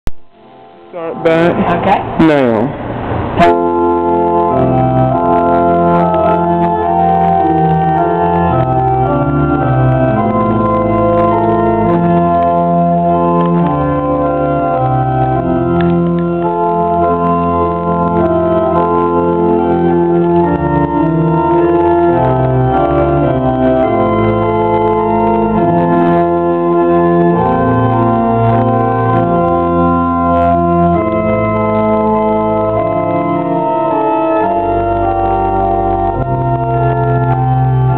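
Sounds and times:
church organ playing a hymn: 0:03.3 - 0:37.9.

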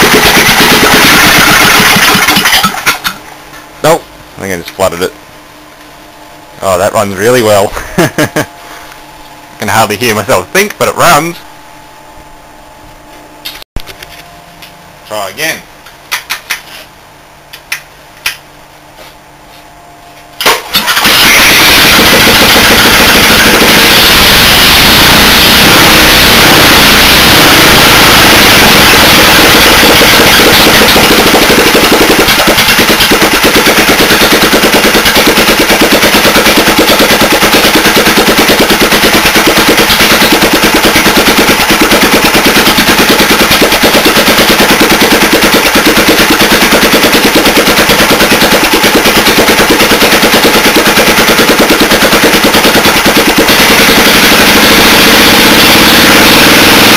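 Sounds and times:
petrol engine running loudly: 0:00.0 - 0:02.9, 0:20.6 - 0:56.9.

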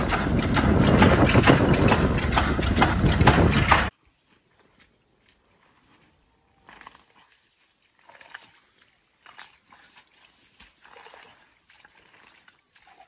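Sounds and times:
hands squelching in wet mud: 0:04.8 - 0:13.0.

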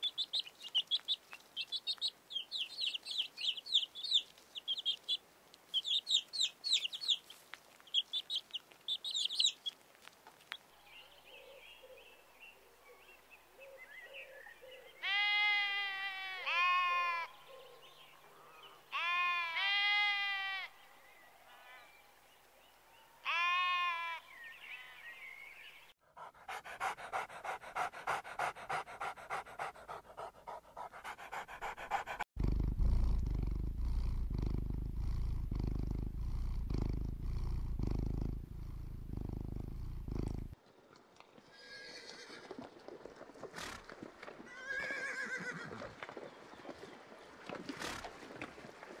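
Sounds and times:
quiet animal calls: 0:00.0 - 0:09.8
sheep bleating: 0:15.0 - 0:17.3, 0:18.9 - 0:20.7, 0:23.2 - 0:24.2
even animal pulses: 0:26.0 - 0:40.6, 0:47.6 - 0:48.4
loud low steady animal sound: 0:26.5 - 0:40.6.

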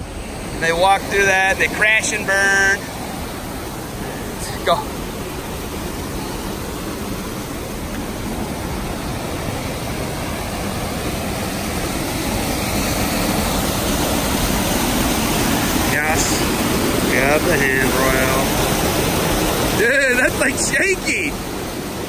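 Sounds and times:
water rushing over rocks: 0:00.0 - 0:22.0.

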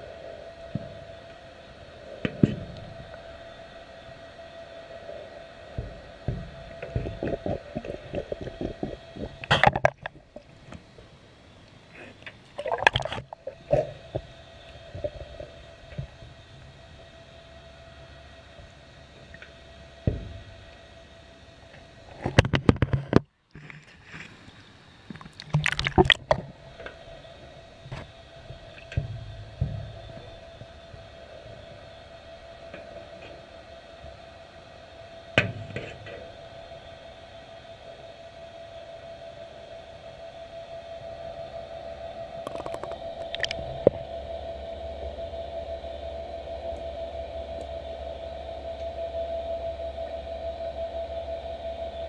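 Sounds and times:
steady hum: 0:00.0 - 0:52.0
water splashing: 0:12.5 - 0:13.6, 0:25.1 - 0:26.4, 0:42.5 - 0:43.6
water gurgling underwater: 0:12.6 - 0:13.8, 0:25.2 - 0:26.5, 0:42.5 - 0:43.9.

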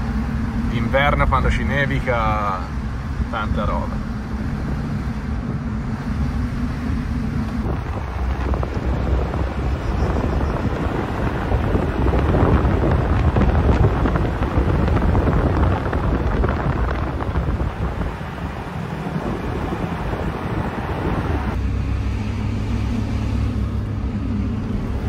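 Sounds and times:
car engine: 0:00.0 - 0:25.0
road noise: 0:00.0 - 0:25.0
wind rushing over microphone: 0:02.9 - 0:21.6.

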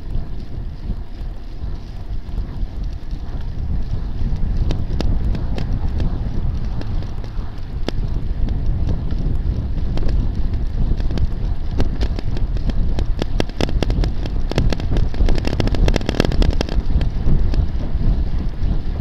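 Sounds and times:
bicycle clicks and rattles: 0:00.0 - 0:19.0
wind rumbling over microphone: 0:00.0 - 0:19.0.

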